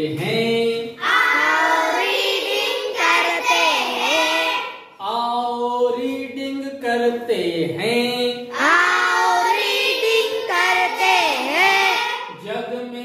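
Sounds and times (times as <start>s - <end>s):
children reading aloud in unison: 1.0s - 5.0s, 8.6s - 12.4s.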